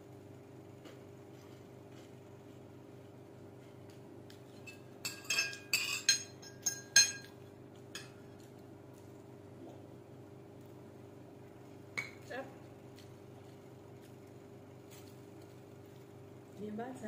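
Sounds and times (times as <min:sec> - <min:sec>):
cutlery clinking against a plate: 0:04.5 - 0:08.4.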